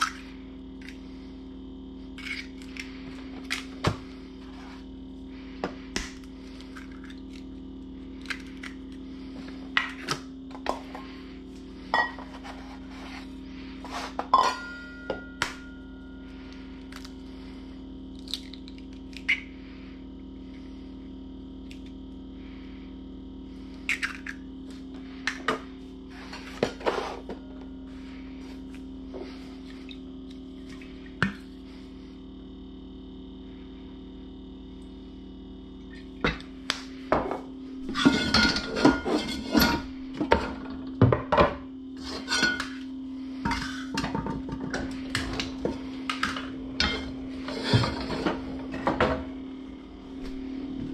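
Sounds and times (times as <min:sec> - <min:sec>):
steady low hum: 0:00.0 - 0:50.9
metal bowl ringing: 0:11.9 - 0:12.2, 0:14.3 - 0:16.3.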